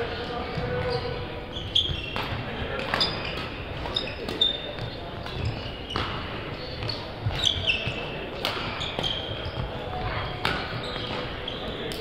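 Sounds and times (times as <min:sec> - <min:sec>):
shoes squeaking on wooden floor: 0:00.5 - 0:11.9
racket striking shuttlecock: 0:02.1 - 0:09.3, 0:10.4 - 0:11.2.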